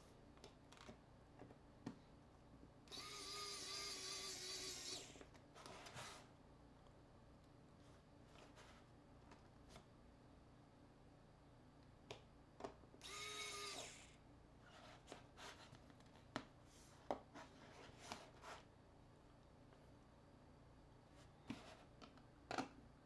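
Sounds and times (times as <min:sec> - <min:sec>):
electric screwdriver whirring: 0:02.9 - 0:05.3, 0:13.0 - 0:14.2.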